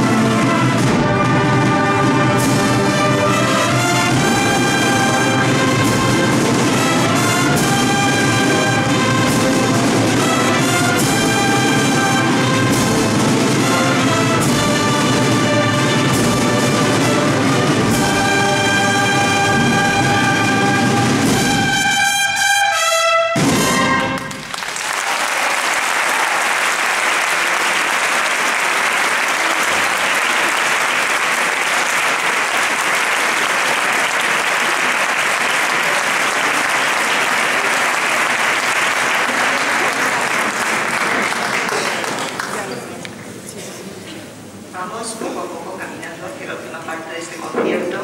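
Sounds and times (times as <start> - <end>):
brass and drum band playing: 0.0 - 25.0, 26.6 - 42.1
audience applause: 24.0 - 43.0.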